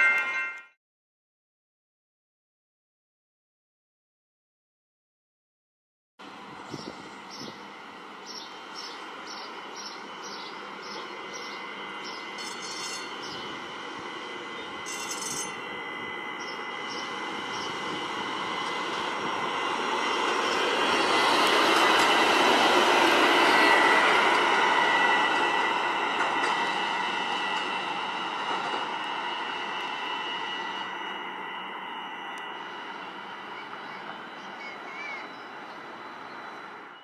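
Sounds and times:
streetcar passing: 6.2 - 37.0
wheel squeal: 12.4 - 13.4, 14.8 - 15.6.

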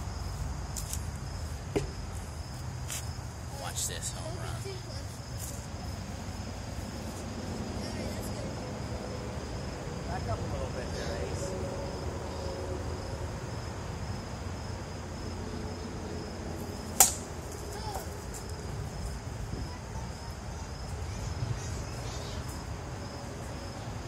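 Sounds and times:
insects droning: 0.0 - 24.0
plastic bat hitting ball: 17.0 - 17.3.

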